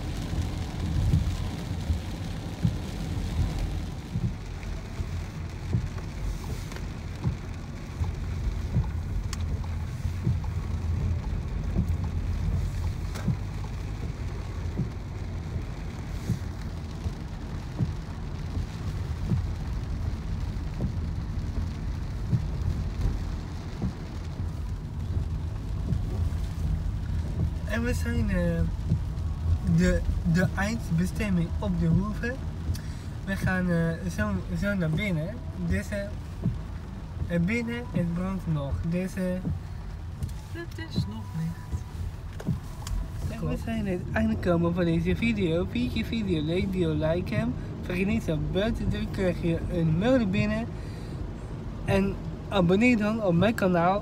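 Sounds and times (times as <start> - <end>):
car road rumble: 0.0 - 54.0
rain pattering on car roof: 0.0 - 54.0.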